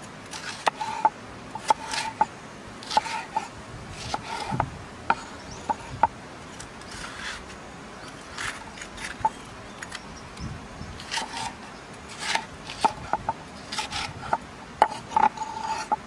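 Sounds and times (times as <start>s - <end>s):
knife scraping through pepper: 0.3s - 4.6s, 6.8s - 7.5s, 11.0s - 16.0s.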